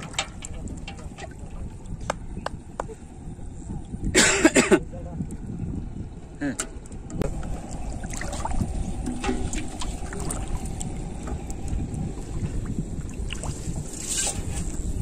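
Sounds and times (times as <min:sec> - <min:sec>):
shallow water sloshing: 0:00.0 - 0:04.0, 0:07.2 - 0:15.0
sharp water splash: 0:08.0 - 0:10.6.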